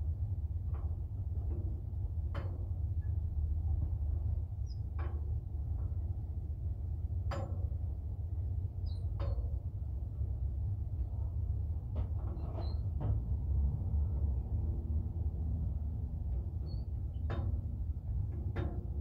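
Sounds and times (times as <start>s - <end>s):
steady low rumble: 0.0s - 19.0s
sharp metal knocks: 7.3s - 7.8s.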